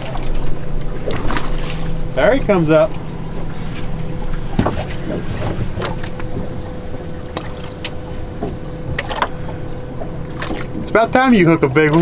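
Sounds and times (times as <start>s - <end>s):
outboard motor humming: 0.0s - 12.0s
thin steady whine: 0.0s - 12.0s.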